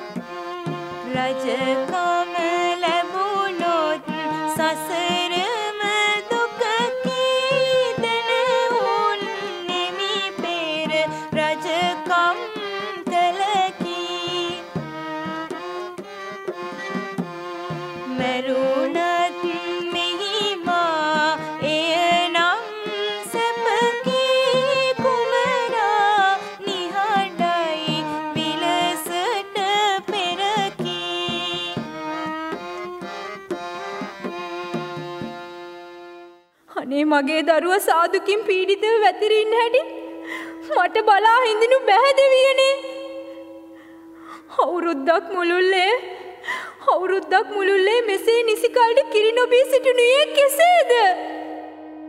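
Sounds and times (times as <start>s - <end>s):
ornamented melody over percussion: 0.0s - 35.8s.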